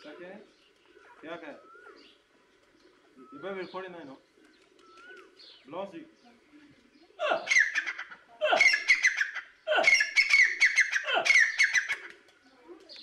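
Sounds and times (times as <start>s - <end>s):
francolin calling: 7.2s - 12.0s.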